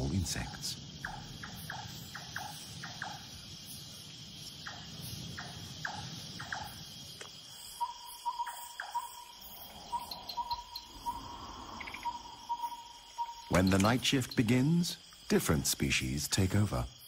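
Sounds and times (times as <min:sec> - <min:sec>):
insects buzzing: 0:00.0 - 0:17.0
bats squeaking: 0:00.1 - 0:16.7
short chirping calls: 0:07.7 - 0:15.0.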